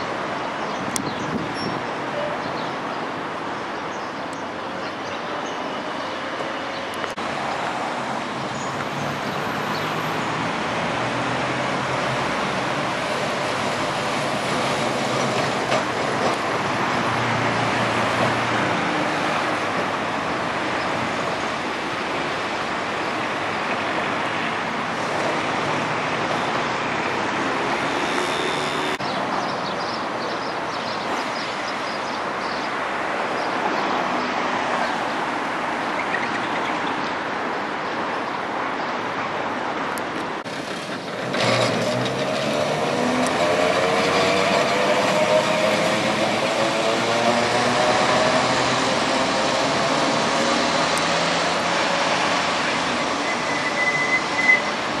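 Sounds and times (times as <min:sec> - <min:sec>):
road traffic: 0:00.0 - 0:55.0
trams rolling rumble: 0:04.6 - 0:28.2, 0:40.2 - 0:55.0.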